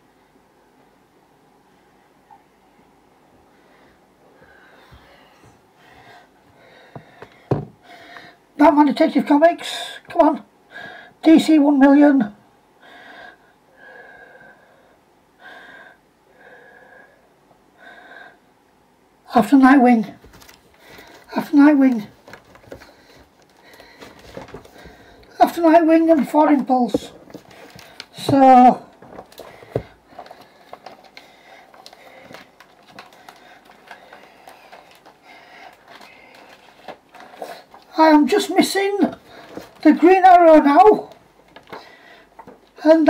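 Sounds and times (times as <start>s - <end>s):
plastic bag rustling: 20.2s - 25.3s, 26.2s - 38.0s, 38.6s - 40.1s.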